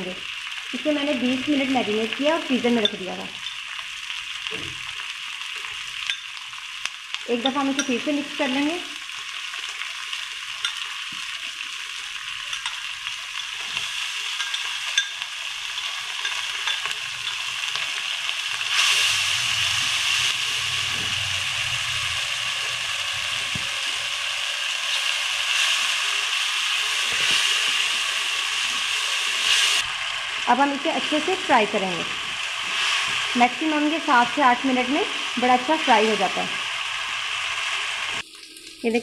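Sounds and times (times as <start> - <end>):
chicken sizzling in hot oil: 0.0 - 39.0
spoon tapping a bowl: 2.8 - 3.6, 7.4 - 8.0, 12.5 - 12.8, 14.4 - 15.2, 15.8 - 17.4.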